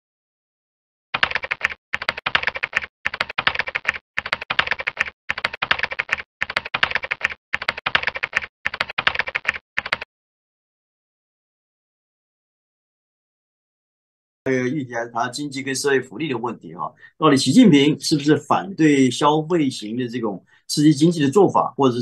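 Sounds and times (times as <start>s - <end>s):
rapid keyboard clicks: 1.2s - 10.1s.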